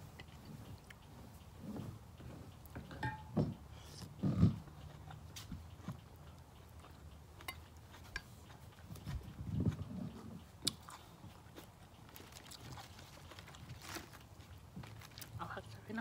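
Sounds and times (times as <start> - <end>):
person chewing food: 3.8 - 15.4.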